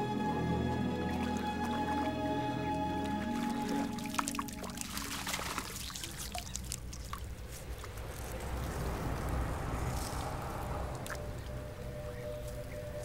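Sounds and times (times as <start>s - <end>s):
water trickling and dripping: 0.0s - 13.0s
water splashing onto face: 2.8s - 11.2s.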